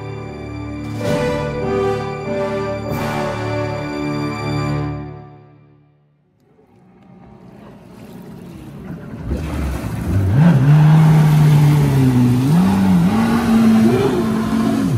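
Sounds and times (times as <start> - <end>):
jet ski engine revving: 7.1 - 14.9.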